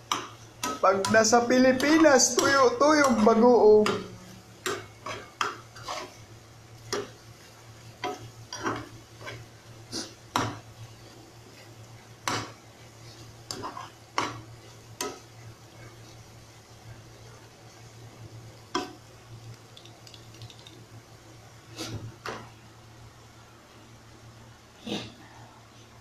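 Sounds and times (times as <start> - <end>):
spoon scraping a frying pan: 4.6 - 6.2, 8.0 - 10.2, 13.5 - 14.4.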